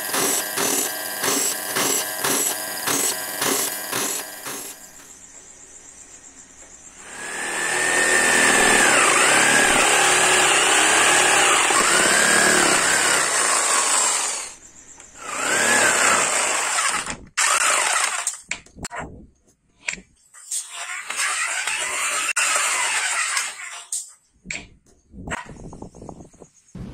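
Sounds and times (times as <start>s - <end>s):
jigsaw cutting wood: 0.0s - 4.8s, 7.0s - 14.6s, 15.2s - 18.3s, 21.0s - 23.6s.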